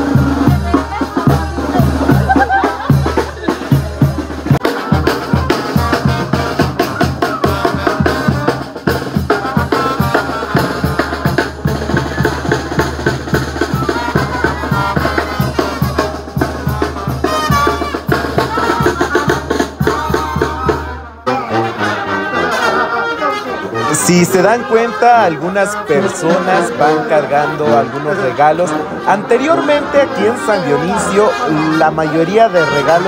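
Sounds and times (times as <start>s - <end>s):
bass drum and snare beating: 0.0s - 21.1s
brass band playing: 0.0s - 33.0s.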